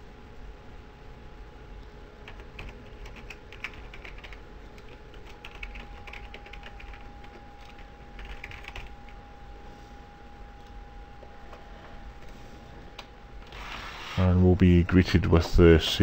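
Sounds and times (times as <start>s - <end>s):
keyboard typing: 2.2s - 9.2s.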